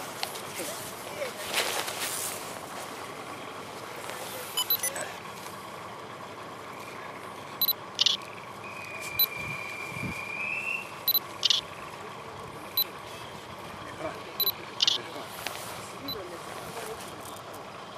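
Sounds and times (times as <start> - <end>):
steady background hum: 6.6 - 8.6, 9.2 - 11.8, 14.3 - 15.1
long high whistle: 8.6 - 11.0.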